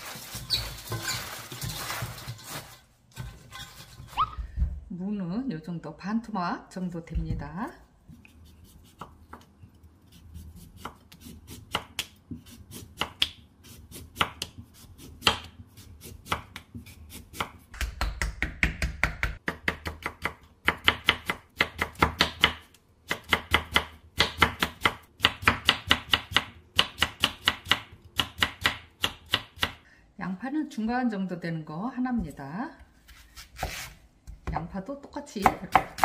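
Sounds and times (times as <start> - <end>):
knife chopping on wooden board: 35.4 - 36.0.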